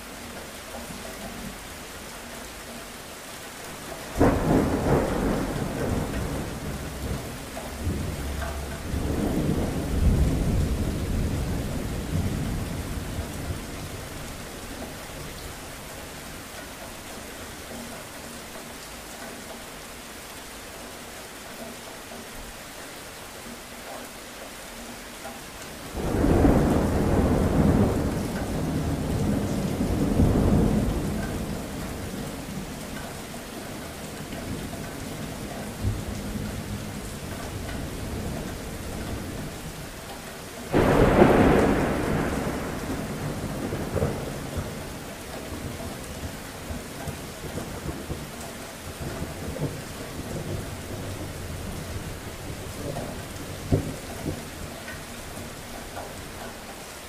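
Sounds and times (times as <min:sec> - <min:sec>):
steady rain: 0:00.0 - 0:57.0
thunder: 0:04.1 - 0:14.3, 0:25.9 - 0:32.4, 0:40.7 - 0:48.3, 0:49.0 - 0:54.7.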